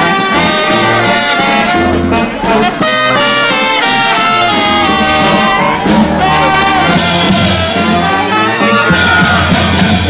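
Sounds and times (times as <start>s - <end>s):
brass band playing: 0.0s - 10.0s.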